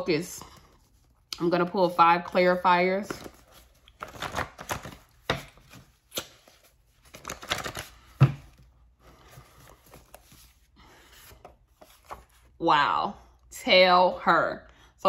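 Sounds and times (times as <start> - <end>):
index cards being shuffled: 3.1 - 8.6.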